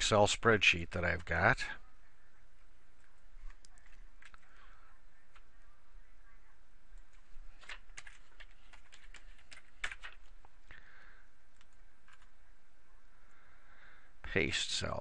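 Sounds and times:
keyboard typing: 6.9 - 10.8, 11.5 - 12.4.

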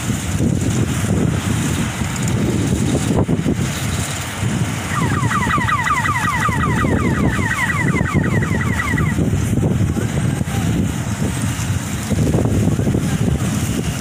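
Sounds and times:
combine harvester running: 0.0 - 7.4, 9.0 - 14.0
wind buffeting microphone: 0.0 - 14.0
trill of falling chirps: 4.9 - 9.2.

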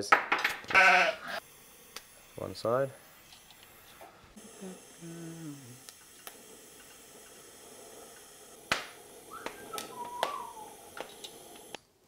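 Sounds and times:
welding arc hiss: 0.8 - 11.9
short whistle-like tone: 9.3 - 10.8.

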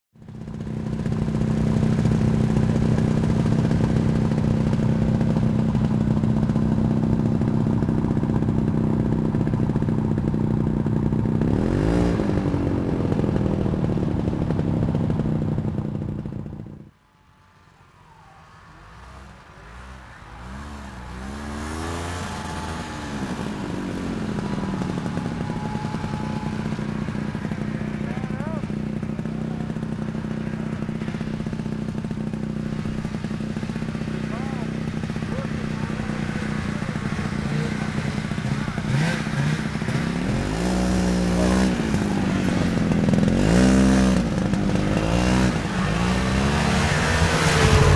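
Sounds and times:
snowmobile engine running: 0.2 - 16.9, 18.1 - 47.9.

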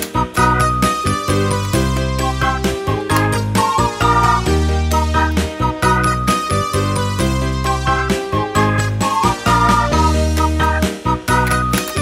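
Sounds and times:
background music with bass and melody: 0.0 - 12.0.

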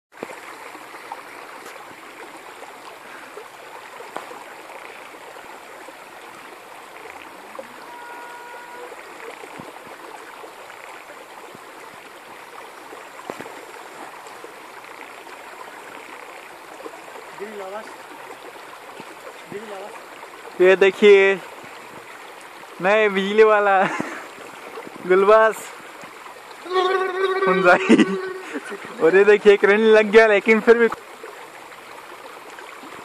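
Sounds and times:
brief high tone: 7.6 - 9.0, 26.6 - 28.6.

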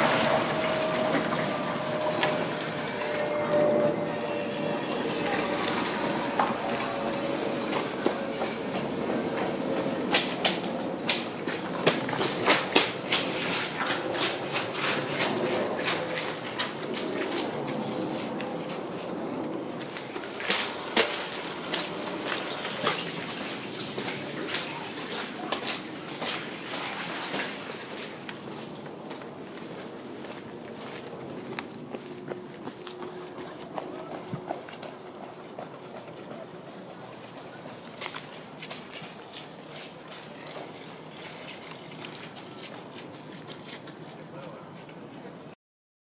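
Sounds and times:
car engine and tyres rumbling: 0.0 - 27.0, 27.7 - 40.1
steady background wash: 0.0 - 40.0
water sloshing: 0.0 - 45.1.

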